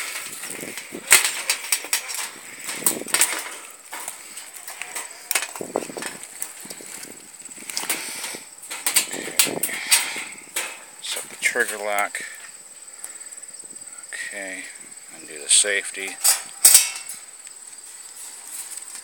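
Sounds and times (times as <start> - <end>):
wire cage trap clicking and rattling: 0.0 - 6.9, 7.5 - 12.0, 16.0 - 17.2.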